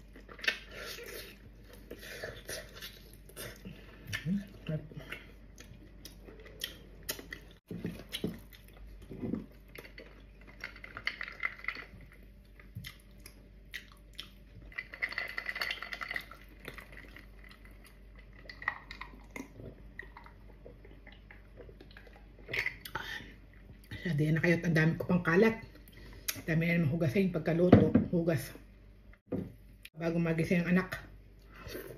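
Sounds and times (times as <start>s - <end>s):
wet chewing: 0.0s - 23.0s.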